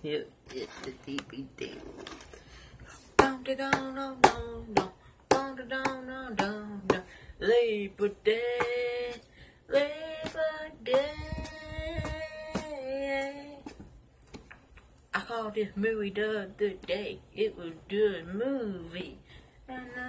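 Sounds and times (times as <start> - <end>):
hand claps: 3.2 - 7.0.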